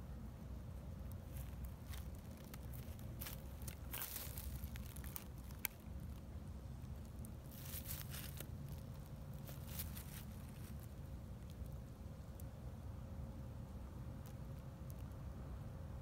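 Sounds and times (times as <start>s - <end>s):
low steady rumble: 0.0s - 16.0s
soft rustles: 1.1s - 11.8s.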